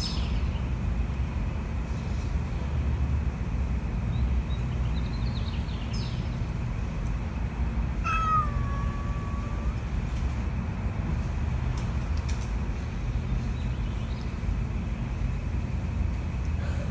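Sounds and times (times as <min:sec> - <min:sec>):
cat yowling: 0:08.0 - 0:09.9.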